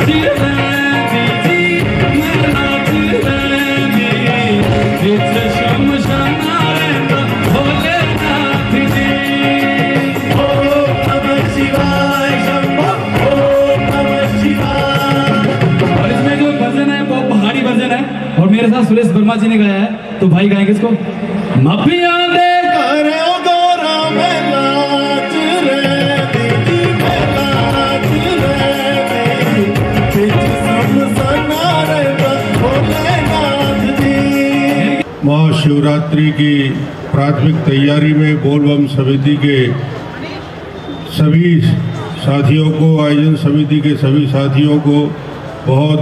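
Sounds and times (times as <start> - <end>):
drums keeping a beat: 0.0 - 17.2, 24.1 - 35.1
man singing into a microphone: 0.0 - 18.4, 21.6 - 36.4
band playing: 0.0 - 46.0.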